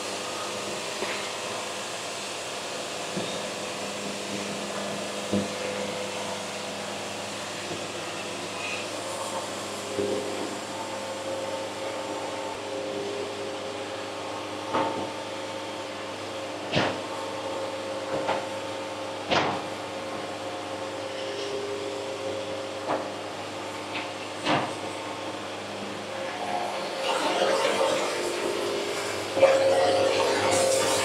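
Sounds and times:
band sawmill humming: 0:22.2 - 0:31.0.

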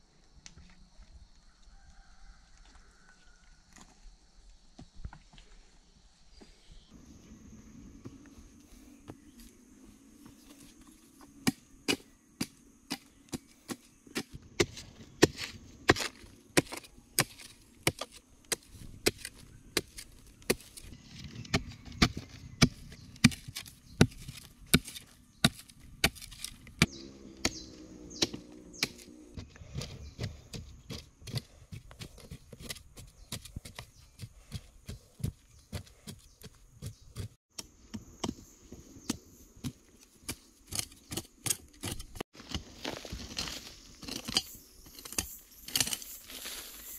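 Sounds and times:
hoe chopping into earth: 0:11.4 - 0:20.8, 0:21.4 - 0:34.0.

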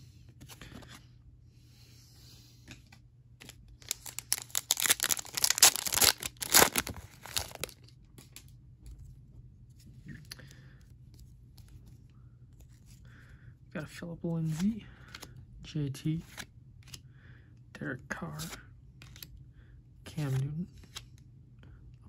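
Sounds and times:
cards being handled: 0:00.3 - 0:01.0, 0:02.6 - 0:09.0, 0:11.0 - 0:13.0, 0:14.4 - 0:15.4, 0:16.2 - 0:17.1, 0:18.3 - 0:19.3, 0:20.2 - 0:21.2
wrapper crinkling and tearing: 0:03.8 - 0:07.9.

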